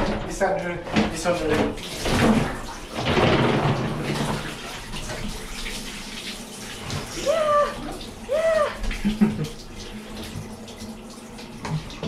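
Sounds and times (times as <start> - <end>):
bathwater splashing: 0.7 - 12.0
dog whining: 7.2 - 8.8.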